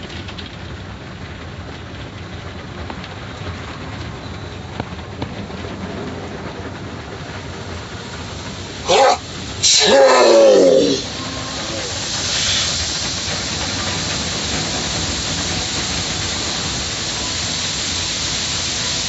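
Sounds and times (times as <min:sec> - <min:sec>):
car wash water spray hiss: 0:06.9 - 0:19.0.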